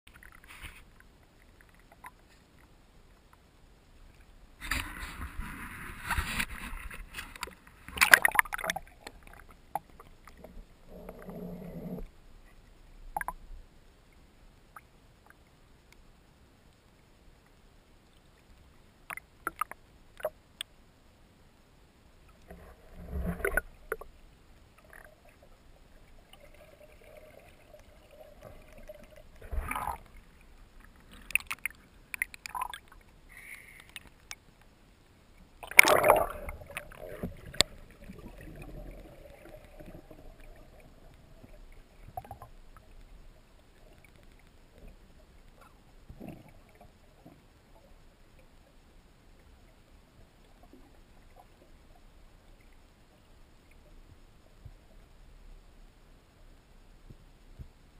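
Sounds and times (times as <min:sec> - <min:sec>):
faint steady hum: 0:00.1 - 0:57.9
water splashing and bubbling: 0:04.1 - 0:13.5, 0:19.0 - 0:20.4, 0:22.3 - 0:34.5, 0:35.4 - 0:48.8.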